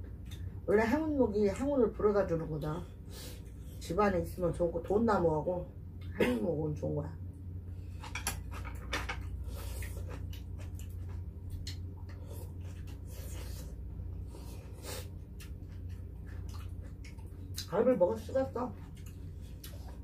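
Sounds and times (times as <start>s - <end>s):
chewing meat: 8.0s - 20.0s.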